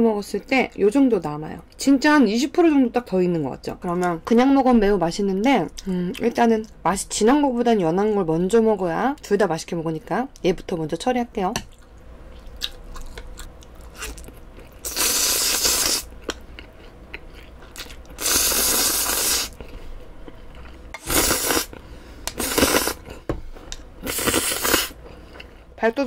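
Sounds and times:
soft wet chewing: 0:11.6 - 0:18.2, 0:19.5 - 0:20.9
person slurping noodles: 0:14.8 - 0:16.1, 0:18.2 - 0:19.6, 0:21.0 - 0:21.8, 0:22.4 - 0:23.1, 0:24.0 - 0:25.0.

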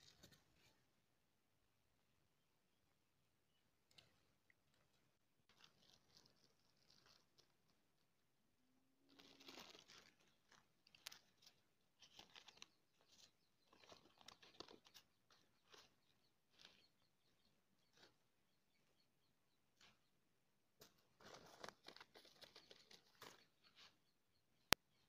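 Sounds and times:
paper crinkling and tearing: 0:05.5 - 0:07.5, 0:09.1 - 0:15.0, 0:21.2 - 0:23.5.

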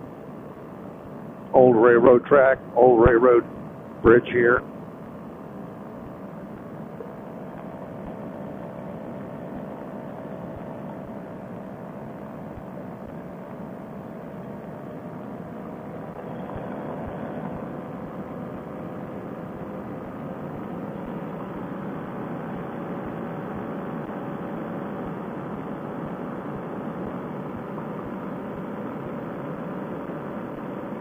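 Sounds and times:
two-stroke engine droning: 0:15.4 - 0:31.0.

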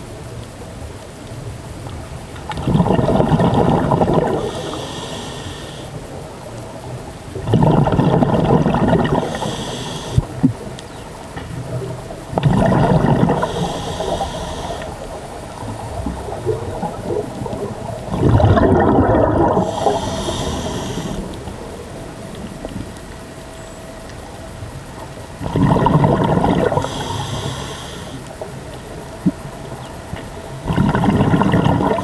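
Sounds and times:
gurgling exhaled bubbles: 0:02.4 - 0:06.1, 0:07.3 - 0:23.1, 0:25.3 - 0:29.8, 0:30.4 - 0:32.0
hiss of inhaled air: 0:04.3 - 0:06.0, 0:09.2 - 0:10.5, 0:13.3 - 0:15.1, 0:19.6 - 0:21.4, 0:26.8 - 0:28.3.

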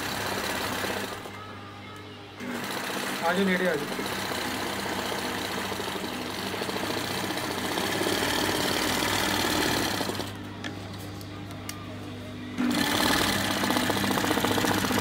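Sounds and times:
sewing machine stitching fast: 0:00.0 - 0:01.3, 0:02.4 - 0:10.3, 0:12.6 - 0:15.0.

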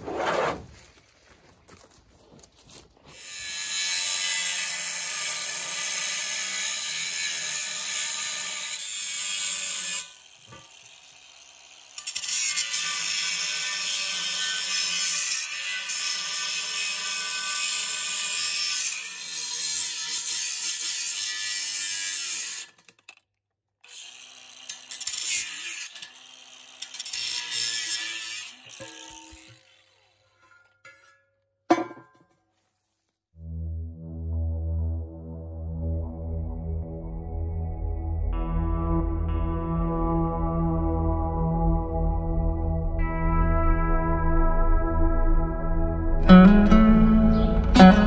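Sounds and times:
angle grinder cutting steel pipe: 0:03.1 - 0:23.2, 0:23.8 - 0:31.2.

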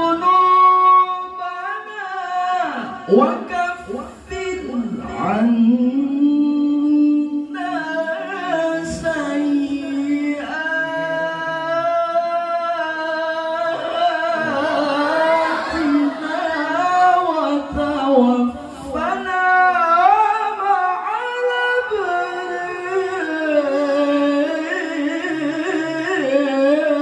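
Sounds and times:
man reciting melodically: 0:00.0 - 0:27.0.

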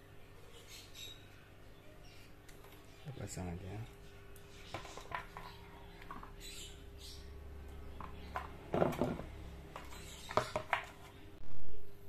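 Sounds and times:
knocks and scrapes on tiled floor: 0:04.7 - 0:06.3, 0:08.0 - 0:11.2.

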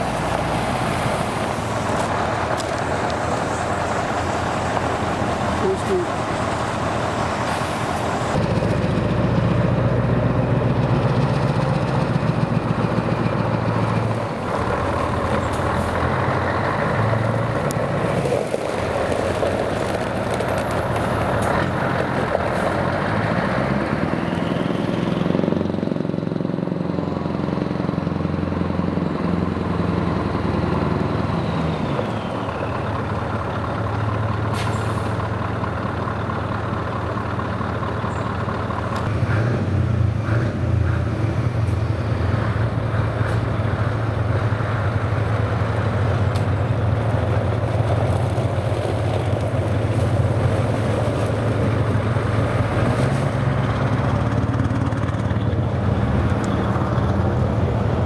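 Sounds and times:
tyres on gravel: 0:00.0 - 0:08.4, 0:11.4 - 0:23.3, 0:43.0 - 0:54.3
diesel truck engine running: 0:00.0 - 0:58.0.

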